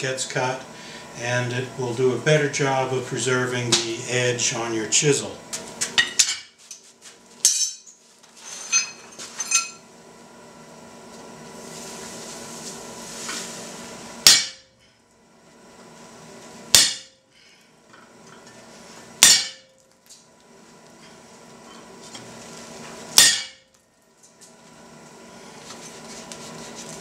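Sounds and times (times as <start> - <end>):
hammer striking chisel on hot steel: 14.2 - 14.7, 16.7 - 17.2, 19.2 - 19.8, 23.1 - 23.8.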